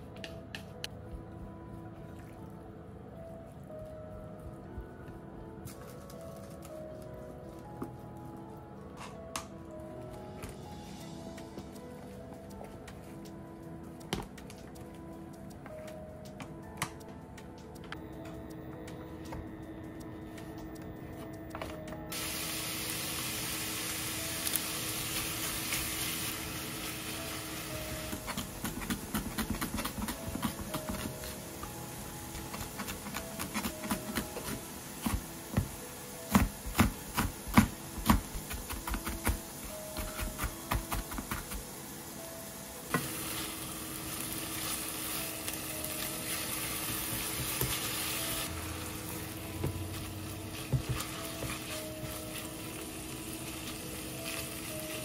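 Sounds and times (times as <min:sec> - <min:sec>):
meat sizzling in a frying pan: 0:22.1 - 0:55.0.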